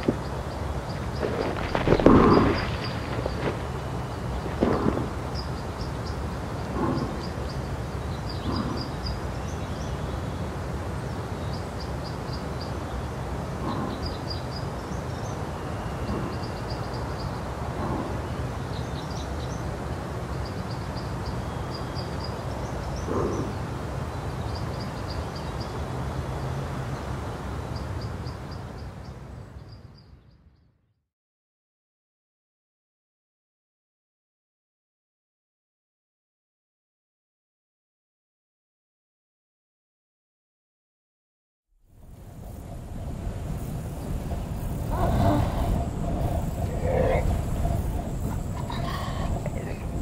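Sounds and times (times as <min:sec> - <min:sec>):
steady low rumble: 0:00.0 - 0:20.6, 0:41.9 - 0:50.0
small birds chirping: 0:00.0 - 0:30.6, 0:42.4 - 0:50.0.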